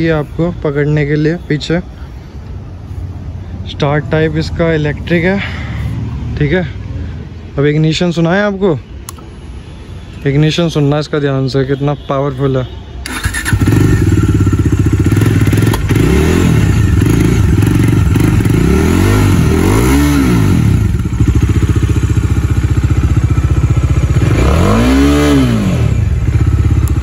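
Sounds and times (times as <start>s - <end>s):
motorcycle engine idling and revving: 0.0s - 7.5s, 13.0s - 27.0s.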